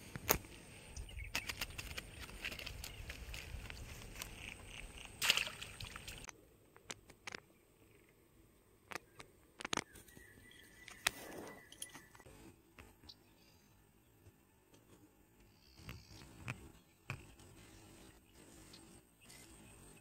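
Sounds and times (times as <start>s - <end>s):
net bag and plants rustling: 1.4s - 5.7s.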